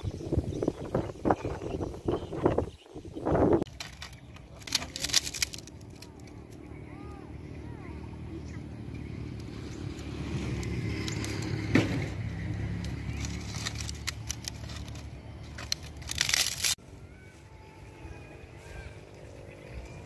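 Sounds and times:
rustling of dry leaves: 0:03.6 - 0:20.0
dry sticks snapping: 0:03.7 - 0:06.7, 0:09.4 - 0:16.8.

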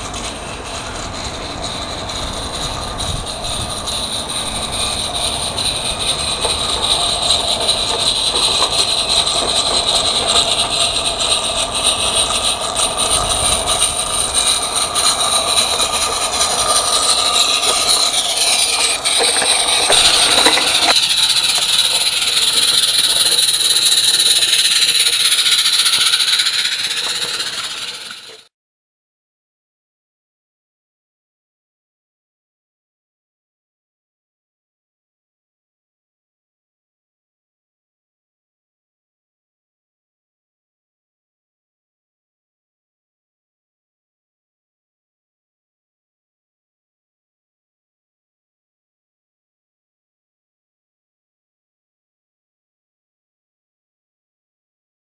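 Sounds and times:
model train wheels rolling on rails: 0:00.0 - 0:28.5.

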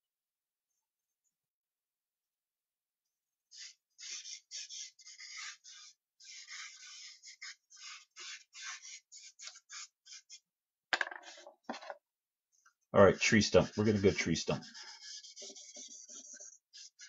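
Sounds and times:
drawing stick scratching paper: 0:03.5 - 0:10.5, 0:13.0 - 0:17.0.

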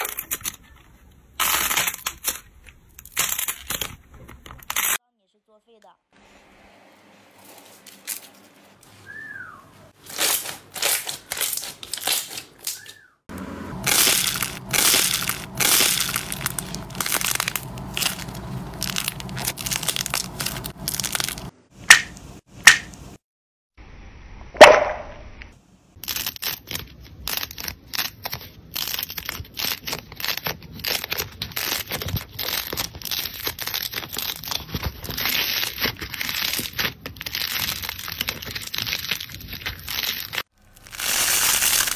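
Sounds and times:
slime crackling and squishing: 0:13.8 - 0:21.5, 0:26.0 - 0:41.9
loud snap: 0:24.6 - 0:25.2.

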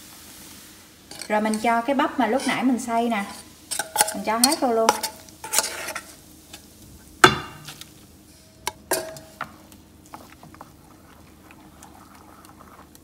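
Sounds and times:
metal spoon clinking on steel bowls: 0:01.1 - 0:01.7, 0:03.2 - 0:06.6, 0:08.7 - 0:09.5
stirring batter: 0:03.2 - 0:06.2, 0:08.7 - 0:13.0.

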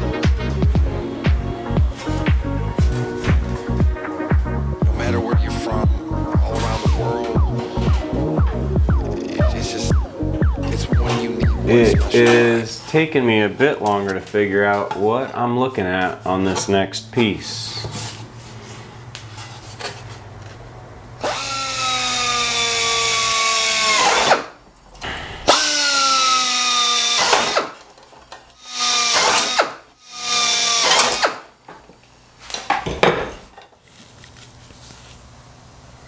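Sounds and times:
power drill drilling into metal: 0:21.2 - 0:24.5, 0:25.5 - 0:27.8, 0:28.6 - 0:31.5.

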